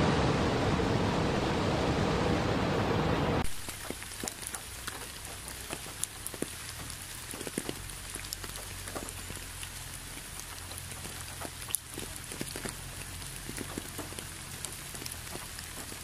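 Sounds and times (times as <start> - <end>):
rain hiss: 0.0 - 16.0
rain drops ticking on leaves: 3.4 - 16.0.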